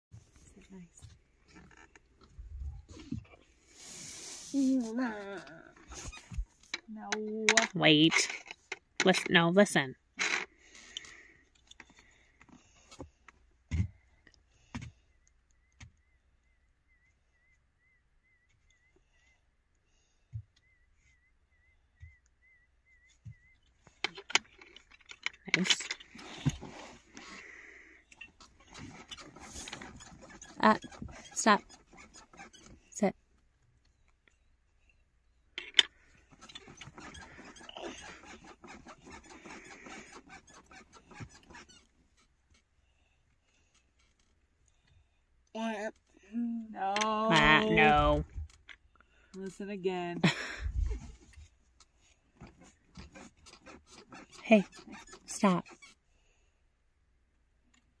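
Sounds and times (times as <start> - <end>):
plastic pegs knocking: 6.3 - 9.4.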